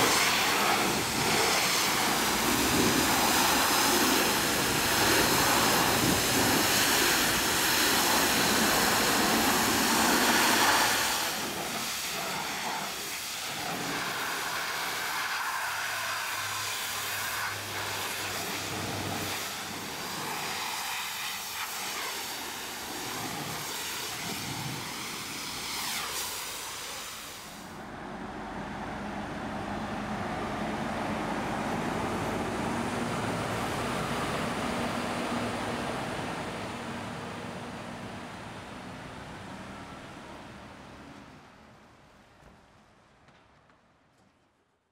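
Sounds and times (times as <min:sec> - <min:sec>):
jet wash spraying water: 0:00.0 - 0:27.8.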